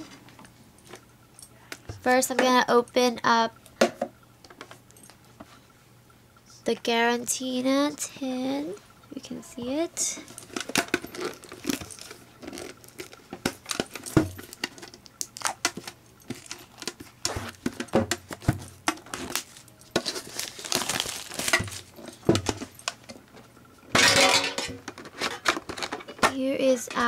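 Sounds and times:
plastic wrapping crinkling and tearing: 0:10.2 - 0:23.0
metal tin clicks and knocks: 0:23.9 - 0:27.0.

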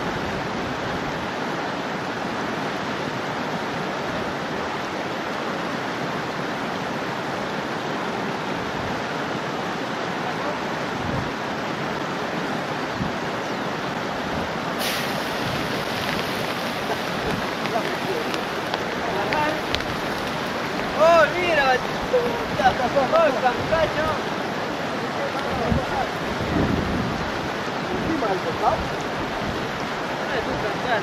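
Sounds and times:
water rushing over rocks: 0:00.0 - 0:31.0
bright hiss: 0:14.8 - 0:18.7.

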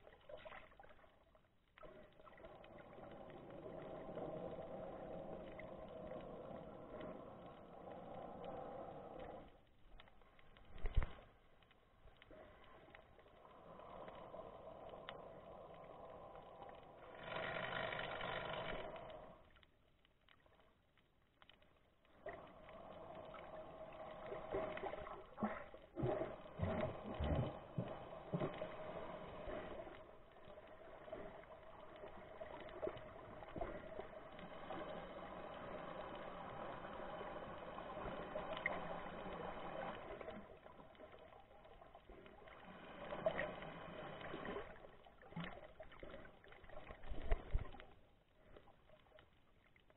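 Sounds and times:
faint steady hum: 0:01.8 - 0:11.3, 0:21.9 - 0:49.2.

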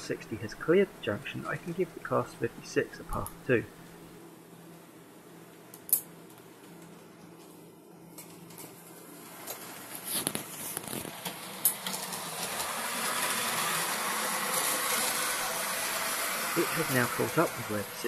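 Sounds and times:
model train motor whirring: 0:10.8 - 0:18.0.

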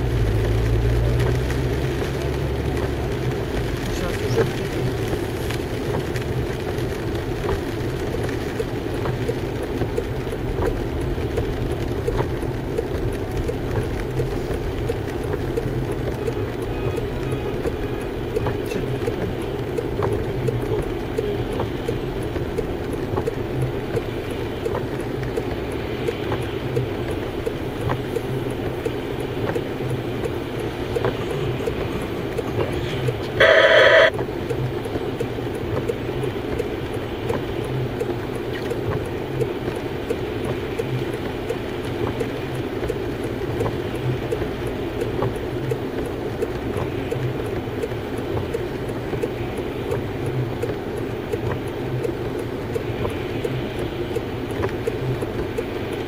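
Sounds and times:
car engine and road rumble: 0:00.0 - 0:56.0
rain ticking on car: 0:00.0 - 0:56.0
car horn tone: 0:33.4 - 0:34.1.

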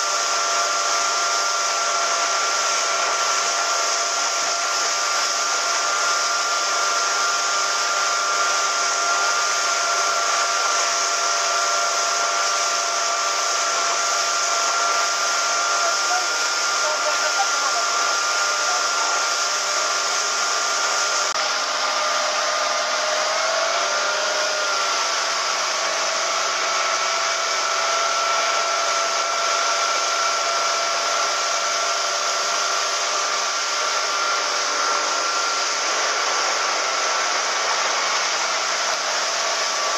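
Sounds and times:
motorboat engine drone: 0:00.0 - 0:39.9.

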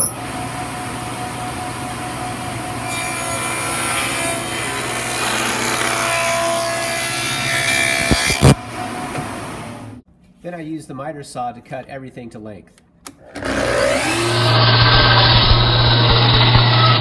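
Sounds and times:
saw blade cutting wood: 0:02.9 - 0:08.6, 0:13.2 - 0:17.0
table saw motor hum: 0:13.2 - 0:17.0.

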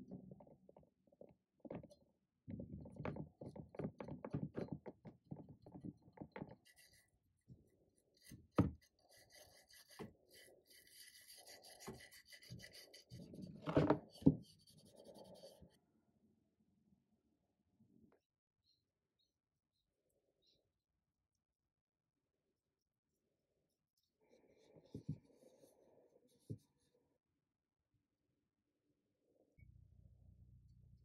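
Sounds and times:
brush scrubbing metal: 0:08.0 - 0:15.8
file rasping across metal: 0:08.2 - 0:15.8.

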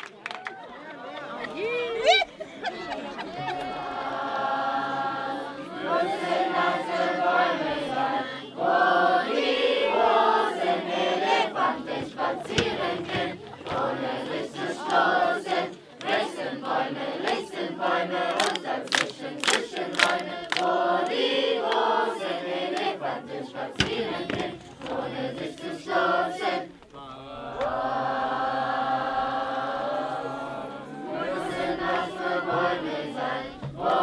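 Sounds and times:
sharp claps: 0:00.0 - 0:00.6, 0:18.2 - 0:21.9
choir singing: 0:02.8 - 0:34.0.

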